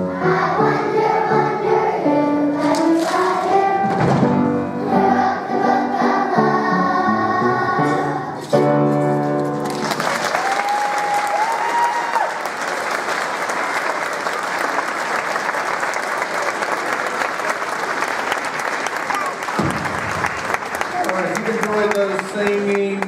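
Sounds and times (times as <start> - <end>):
children's choir singing: 0.0 - 8.6
audience applauding: 9.6 - 23.0.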